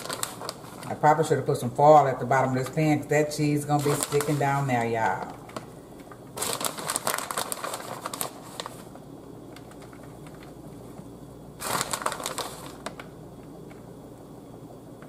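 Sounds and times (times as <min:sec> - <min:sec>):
plastic bag crinkling: 0:00.0 - 0:01.6, 0:03.6 - 0:10.6, 0:11.6 - 0:13.1.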